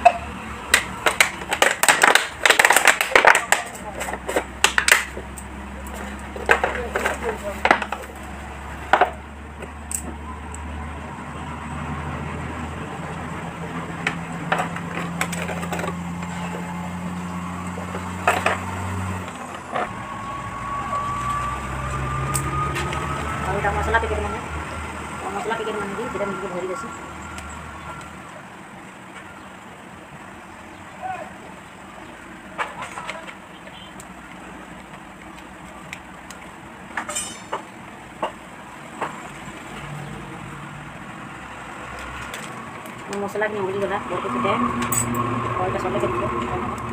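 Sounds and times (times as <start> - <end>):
plastic containers clicking: 0.0 - 5.2.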